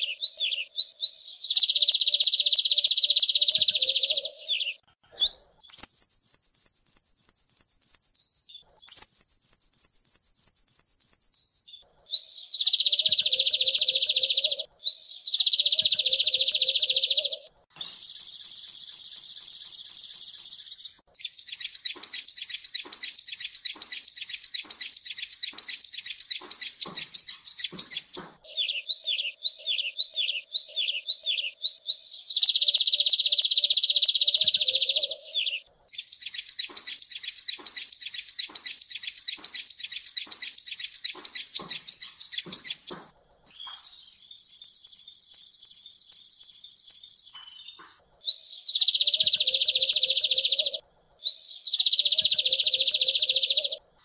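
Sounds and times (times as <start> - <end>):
bird trilling: 0.0 - 19.1, 20.0 - 53.8
bird high thin whistle: 5.3 - 11.7, 43.5 - 48.0
bird buzzy rattle: 36.0 - 48.0.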